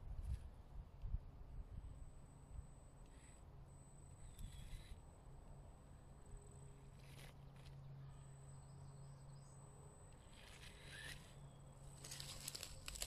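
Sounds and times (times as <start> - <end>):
toy car motor hum: 10.2 - 11.4
tyres rustling on moss: 11.8 - 13.0.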